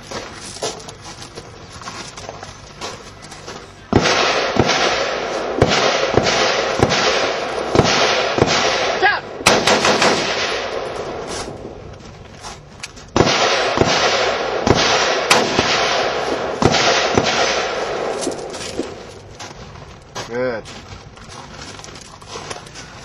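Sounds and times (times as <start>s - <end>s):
rifle firing single shots: 3.9s - 11.8s, 13.1s - 19.3s
loud rushing noise: 3.9s - 11.9s.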